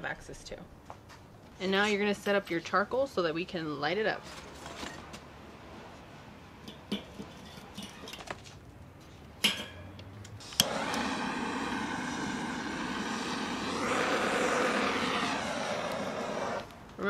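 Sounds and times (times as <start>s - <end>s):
steady engine drone: 10.6s - 16.7s.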